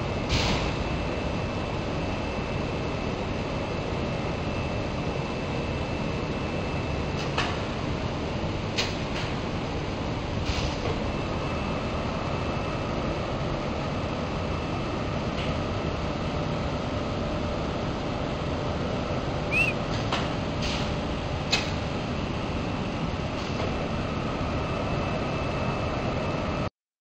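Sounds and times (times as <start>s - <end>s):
brief squeak: 19.5s - 19.8s.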